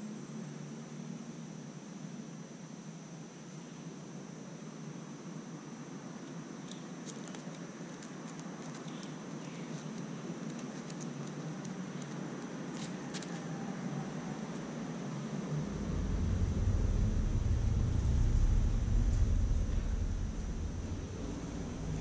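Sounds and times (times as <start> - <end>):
outdoor background hiss: 0.0 - 22.0
high-pitched whine: 14.0 - 22.0.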